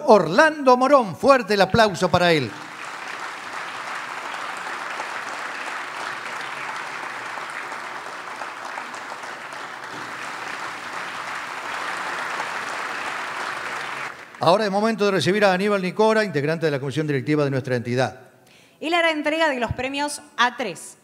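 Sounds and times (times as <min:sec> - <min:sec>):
audience applauding: 0:01.7 - 0:15.4.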